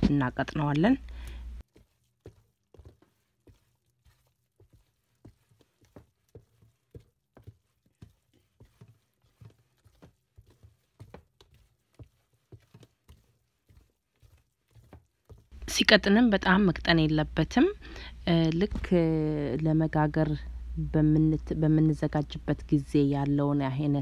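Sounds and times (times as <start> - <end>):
spoon beating batter wet slaps: 0.0 - 15.6.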